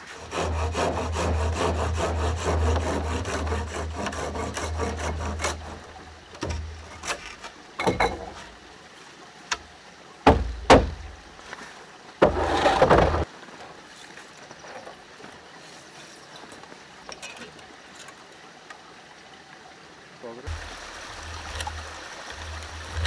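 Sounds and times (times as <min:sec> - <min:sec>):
hand saw cutting wood: 0:00.0 - 0:07.4, 0:12.2 - 0:13.3
wood scraping on wood: 0:00.0 - 0:07.6, 0:12.2 - 0:13.3
wooden knocks: 0:07.8 - 0:08.4.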